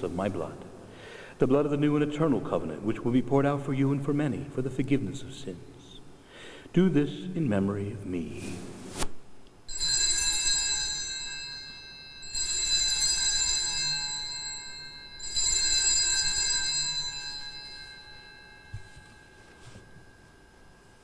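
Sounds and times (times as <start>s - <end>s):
altar bells ringing: 9.7s - 21.0s.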